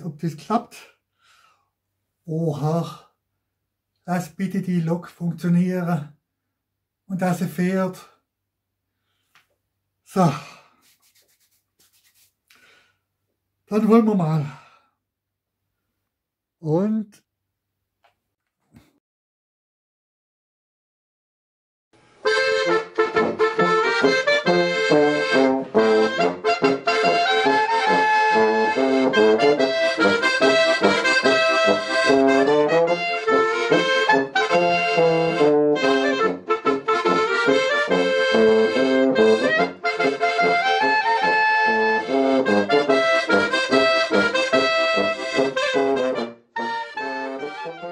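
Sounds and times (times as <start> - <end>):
accordion: 22.2 - 47.9
brass horn: 22.2 - 47.9
clarinet: 22.2 - 47.9.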